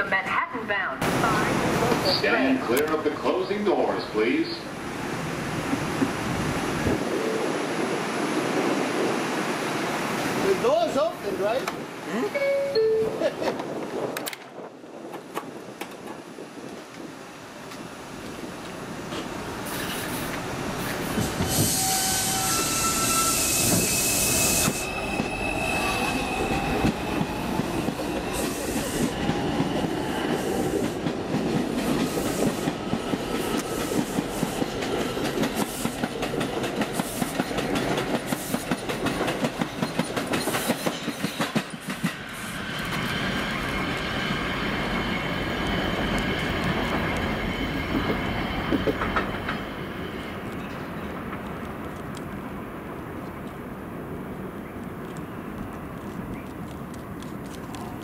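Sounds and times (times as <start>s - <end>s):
wheels clacking over rail joints: 26.1s - 52.3s.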